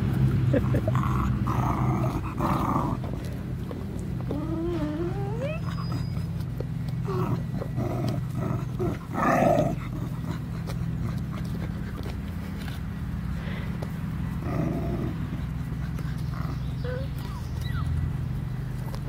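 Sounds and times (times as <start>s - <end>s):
puppies yipping and growling: 0.0s - 19.0s
puppies whining: 0.8s - 13.2s, 14.3s - 19.0s
puppy yelp: 4.3s - 6.5s, 16.7s - 18.0s.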